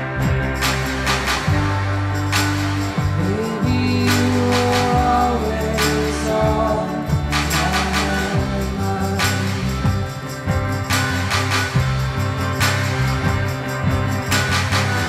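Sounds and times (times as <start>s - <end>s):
percussion hits: 0.0s - 15.0s
rock band playing live: 0.0s - 15.0s
person singing: 3.1s - 10.4s.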